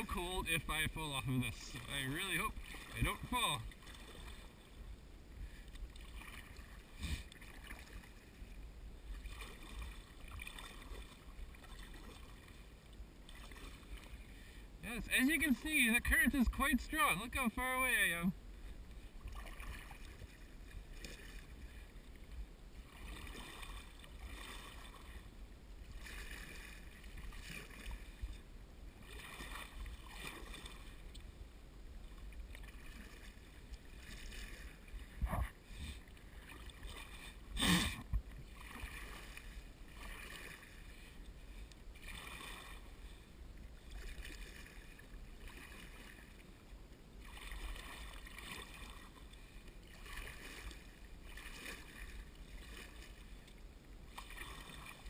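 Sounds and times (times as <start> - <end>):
kayak paddle splashing in water: 0.0 - 4.8, 5.4 - 31.4, 32.0 - 55.0.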